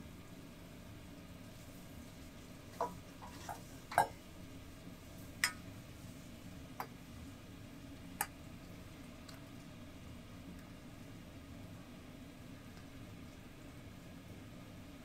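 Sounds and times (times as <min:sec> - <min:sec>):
broth boiling in a pot: 0:00.0 - 0:15.0.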